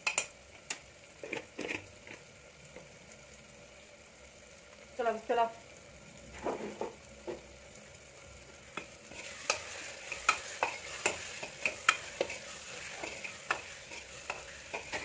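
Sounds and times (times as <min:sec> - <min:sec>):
food sizzling: 0:00.0 - 0:15.0
ladle scraping and clinking pot: 0:09.1 - 0:15.0.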